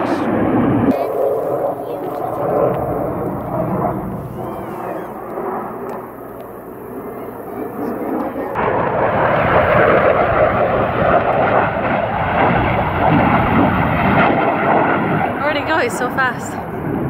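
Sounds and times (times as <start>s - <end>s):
fighter jet low pass: 0.0s - 17.0s.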